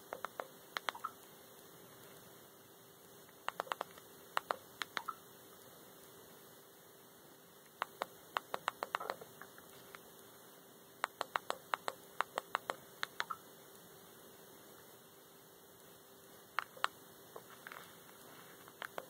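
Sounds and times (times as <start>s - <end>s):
faint steady hum: 0.0s - 19.0s
sharp clicks of menu scrolling: 0.1s - 1.2s, 3.4s - 5.2s, 7.7s - 9.2s, 11.0s - 13.4s, 16.6s - 17.0s.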